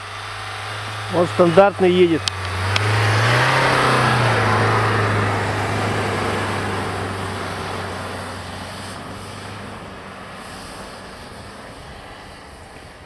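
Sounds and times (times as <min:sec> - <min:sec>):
suv engine driving past: 0:00.0 - 0:13.0.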